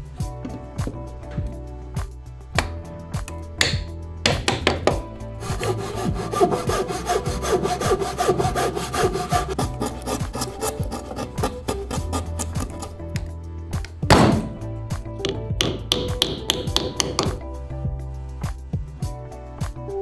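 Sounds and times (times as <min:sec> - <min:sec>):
handsaw cutting wood: 0:05.4 - 0:13.0
hammer tapping on wood: 0:15.2 - 0:17.4.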